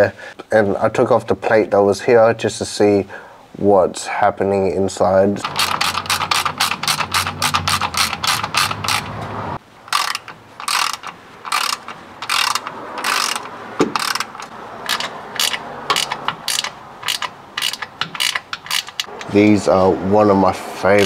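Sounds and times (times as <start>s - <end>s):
ratchet spanner clicking: 5.4s - 9.2s, 9.9s - 19.3s.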